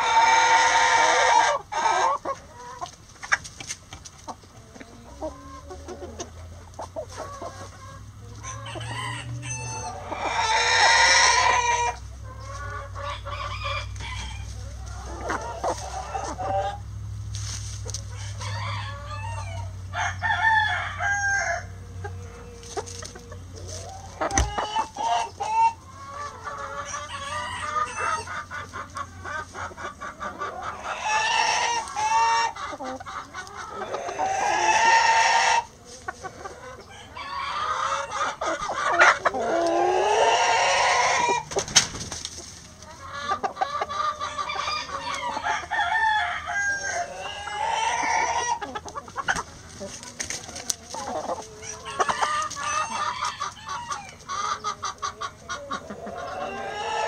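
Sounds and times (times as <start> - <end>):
roosters crowing: 0.0 - 3.4, 4.3 - 42.2, 42.8 - 57.0
hens clucking: 0.0 - 57.0.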